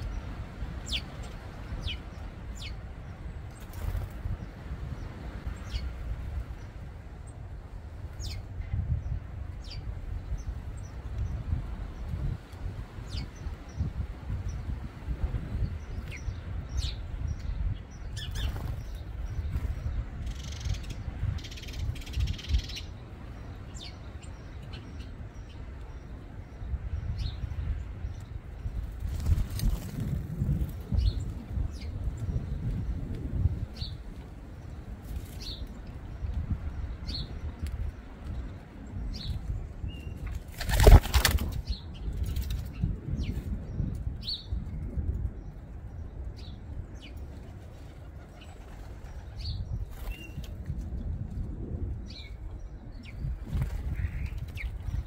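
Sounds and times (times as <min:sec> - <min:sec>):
birds chirping: 0:15.5 - 0:44.7, 0:52.0 - 0:55.0.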